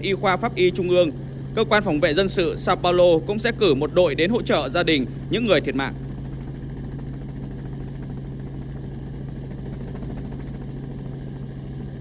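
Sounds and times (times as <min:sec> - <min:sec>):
helicopter engine and rotor drone: 0:00.0 - 0:12.0.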